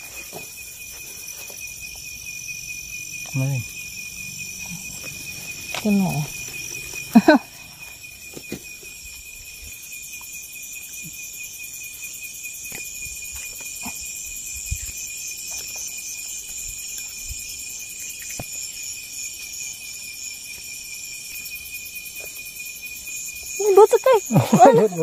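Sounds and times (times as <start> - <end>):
crickets trilling: 0.0 - 25.0.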